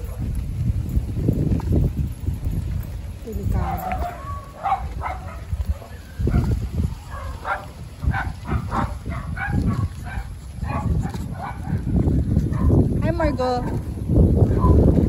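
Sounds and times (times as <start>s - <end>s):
puppies yipping: 3.5s - 11.8s.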